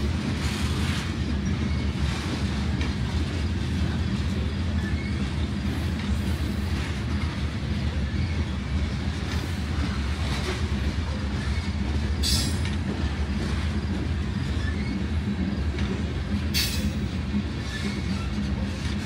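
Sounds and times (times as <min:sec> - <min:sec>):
train wheels rumbling on rail: 0:00.0 - 0:19.0
wheel flange squeal: 0:00.4 - 0:02.7, 0:04.4 - 0:10.0, 0:11.1 - 0:12.7, 0:13.7 - 0:15.6, 0:16.5 - 0:19.0.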